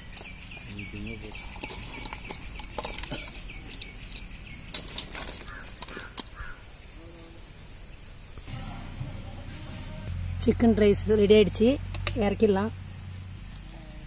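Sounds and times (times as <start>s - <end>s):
birds chirping: 0.0s - 9.5s.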